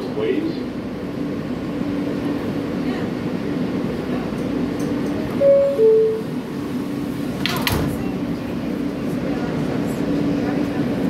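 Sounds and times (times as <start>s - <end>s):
train humming: 0.0s - 11.0s
subway door-closing chime: 5.3s - 6.6s.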